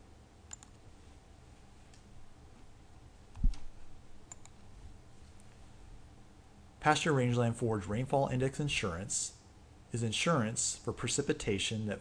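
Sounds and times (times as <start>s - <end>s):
faint computer mouse clicks: 0.5s - 0.8s, 4.3s - 4.6s.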